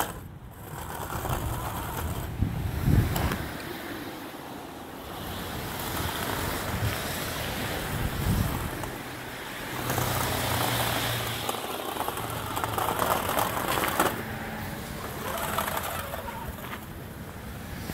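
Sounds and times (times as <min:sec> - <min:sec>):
electric toy truck motor: 0:00.0 - 0:02.4, 0:09.6 - 0:16.8
plow blade scraping snow: 0:00.0 - 0:17.9.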